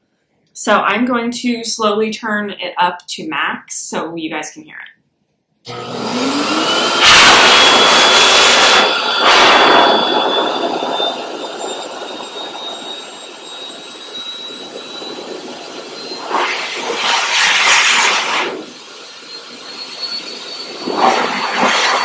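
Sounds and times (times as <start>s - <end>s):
dryer motor whine: 5.7s - 22.0s
rushing air: 5.7s - 22.0s.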